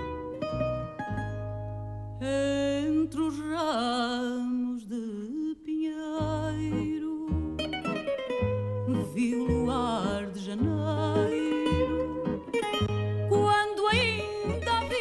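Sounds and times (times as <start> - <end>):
guitars playing: 0.0 - 4.0, 6.2 - 15.0
woman singing with vibrato: 2.2 - 7.5, 8.8 - 12.6, 13.2 - 15.0.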